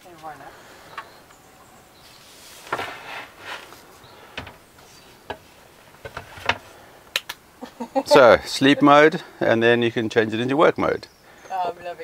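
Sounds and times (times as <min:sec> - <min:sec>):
wooden knocks and clunks: 0:02.6 - 0:03.7, 0:04.3 - 0:06.8.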